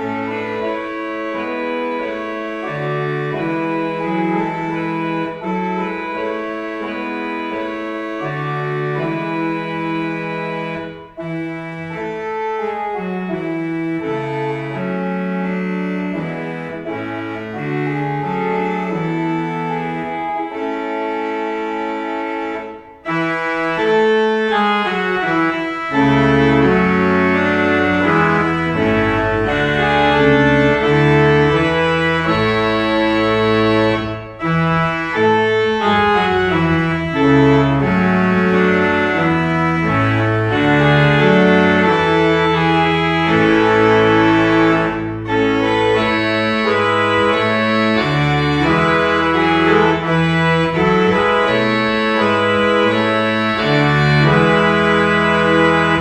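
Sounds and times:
church organ chords: 0:00.0 - 0:56.0
deep organ pedal bass notes: 0:00.0 - 0:56.0.

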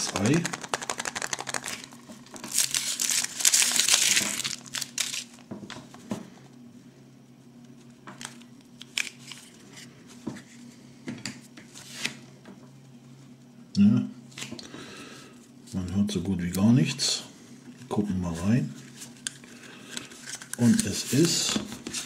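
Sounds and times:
chocolate shell cracking: 0:00.0 - 0:05.3
foil wrapper crinkling and tearing: 0:00.0 - 0:05.4.

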